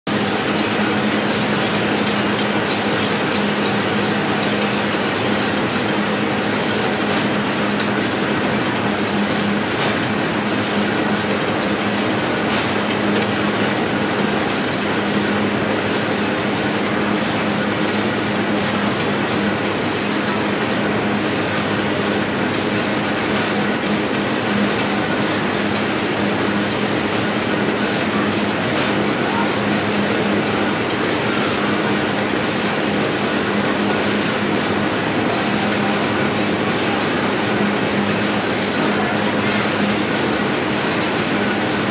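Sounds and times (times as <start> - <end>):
constant machine hum: 0.1 - 41.9
printing press clatter: 0.1 - 41.9.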